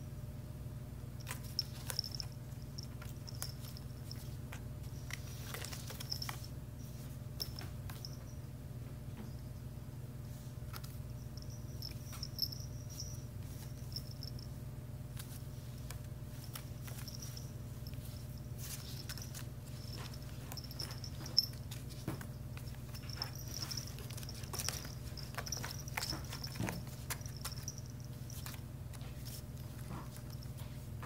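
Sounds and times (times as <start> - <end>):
steady low hum: 0.0 - 31.0
rustling in woven basket: 1.2 - 7.1, 15.1 - 30.9
collar bell jingling: 1.2 - 8.5, 11.2 - 14.6, 16.4 - 30.8
claws clicking on weave: 18.6 - 28.6.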